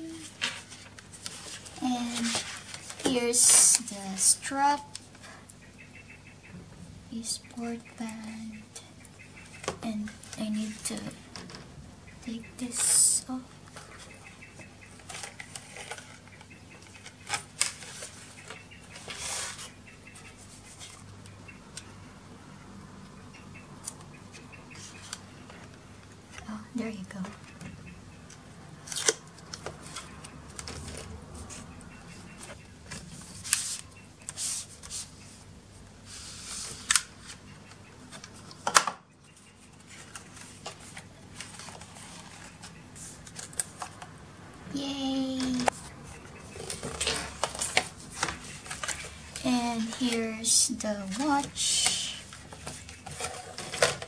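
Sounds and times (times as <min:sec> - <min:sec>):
paperboard sleeves sliding and rustling: 0:33.1 - 0:35.3.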